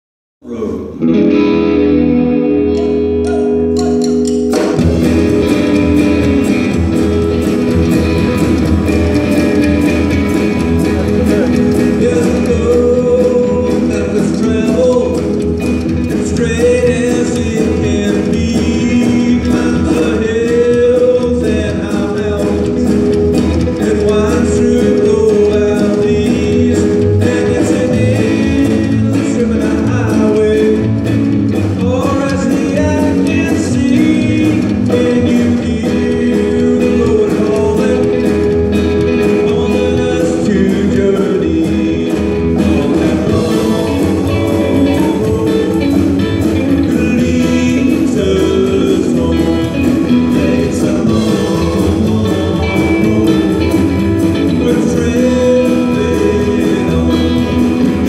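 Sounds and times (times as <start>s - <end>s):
man singing lead vocal: 0.4s - 1.2s, 2.7s - 58.0s
rockabilly band playing: 0.5s - 58.0s.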